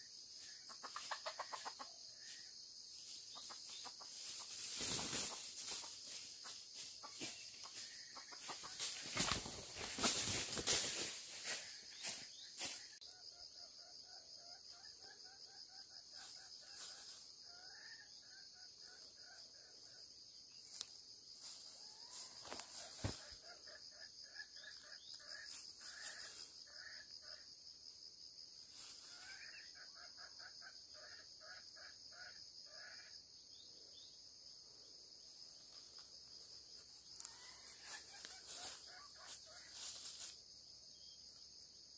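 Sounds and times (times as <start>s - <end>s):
insects buzzing: 0.0s - 41.9s
chicken clucking: 0.4s - 13.4s, 37.1s - 40.3s
wings flapping in dry leaves: 3.4s - 12.8s, 21.4s - 23.4s, 37.2s - 40.4s.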